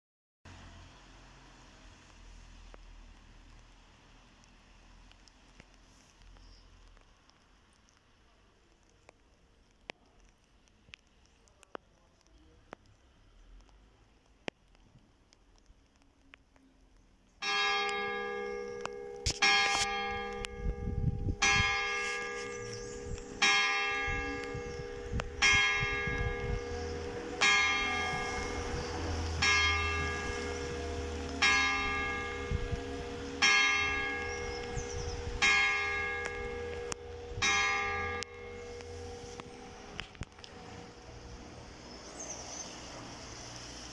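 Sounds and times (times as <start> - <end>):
church bell tolling: 17.4 - 40.0.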